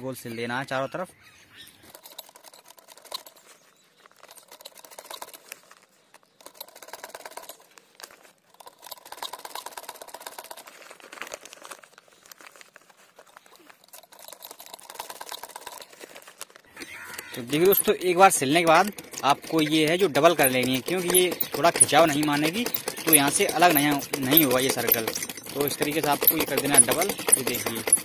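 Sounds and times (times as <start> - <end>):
sewing machine stitching: 1.8 - 3.4, 4.2 - 5.6, 6.4 - 7.7, 8.5 - 10.7, 13.8 - 16.0, 17.1 - 28.0.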